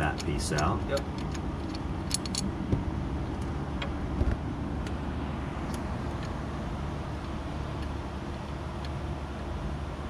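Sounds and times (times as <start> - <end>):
hand tools clicking on metal: 0.0 - 2.5
low background rumble: 0.0 - 10.0.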